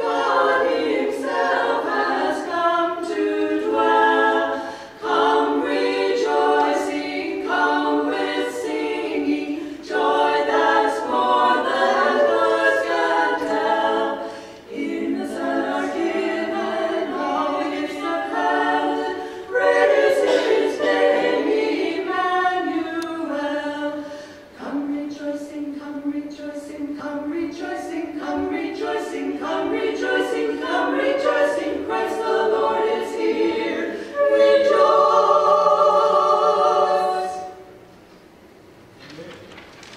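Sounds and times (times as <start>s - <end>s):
women singing a cappella: 0.0s - 37.8s.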